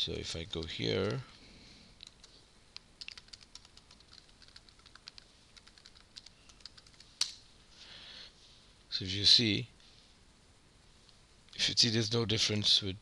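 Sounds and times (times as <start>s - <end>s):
keyboard typing: 2.0s - 2.4s, 3.0s - 7.1s.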